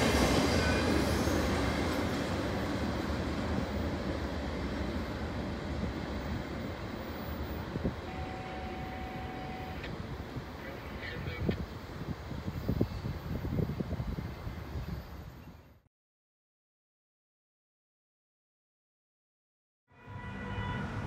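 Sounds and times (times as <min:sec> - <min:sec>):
train wheels rumbling: 0:00.0 - 0:14.6.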